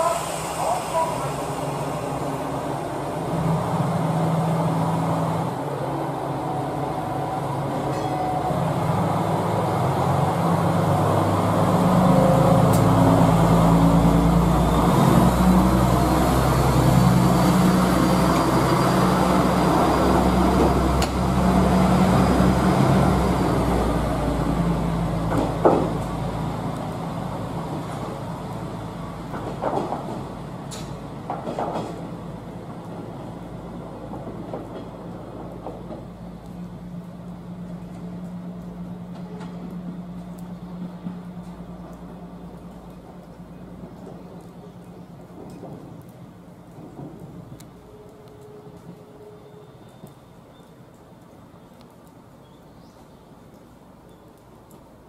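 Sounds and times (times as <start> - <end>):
diesel railcar engine revving: 0.0 - 48.0
wheel clacks over rail joints: 29.2 - 33.1, 43.0 - 47.8.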